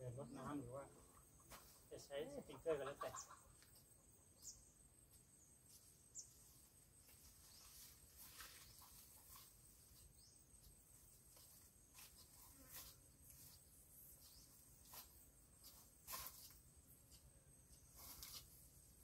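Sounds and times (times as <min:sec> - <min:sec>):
faint scrapes: 0:17.9 - 0:18.8.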